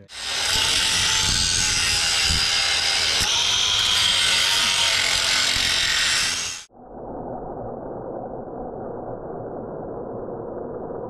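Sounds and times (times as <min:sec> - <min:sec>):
angle grinder grinding steel: 0:00.1 - 0:06.7.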